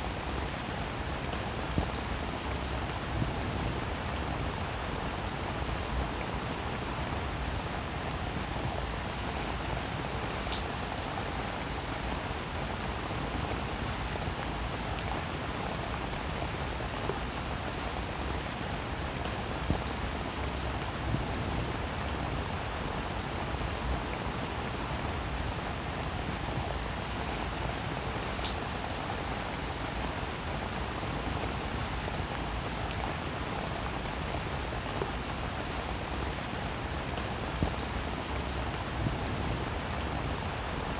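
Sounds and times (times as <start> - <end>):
steady rain hiss: 0.0 - 40.9
raindrop ticks: 10.5 - 10.7.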